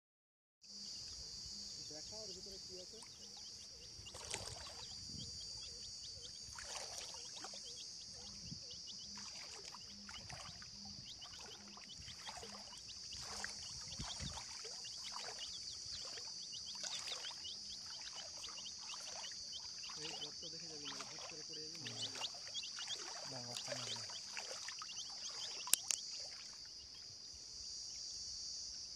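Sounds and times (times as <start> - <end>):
high insect drone: 0.7 - 28.9
water sloshing and splashing: 2.1 - 27.2
baby chicks peeping: 7.1 - 26.0.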